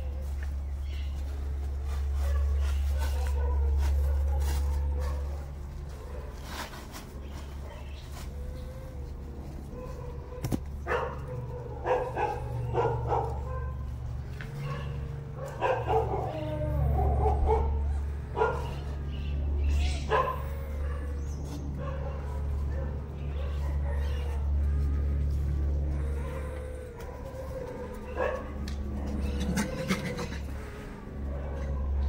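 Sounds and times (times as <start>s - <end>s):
steady low hum: 0.0s - 32.0s
animal barks and yips: 7.6s - 32.0s.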